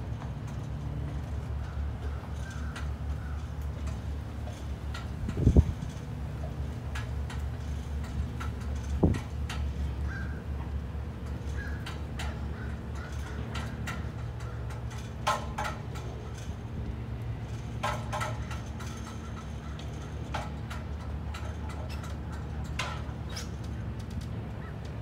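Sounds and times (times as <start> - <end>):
crows cawing: 10.0 - 10.4, 11.5 - 13.4.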